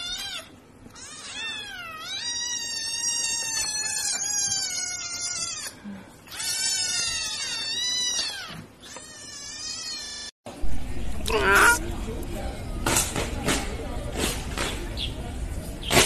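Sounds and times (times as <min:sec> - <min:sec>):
cat yowling: 0:11.2 - 0:11.8.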